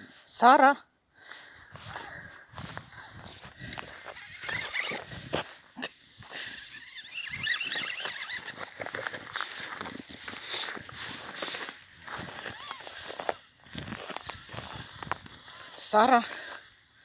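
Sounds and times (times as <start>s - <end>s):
footsteps on packed snow: 1.3s - 16.7s
high squeaks: 4.0s - 5.2s, 5.8s - 9.2s, 12.4s - 12.9s.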